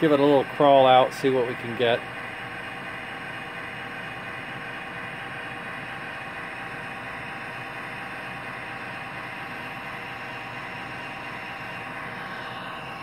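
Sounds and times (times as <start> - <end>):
model locomotive rolling on track: 0.0 - 2.3
model diesel engine sound: 0.0 - 13.0.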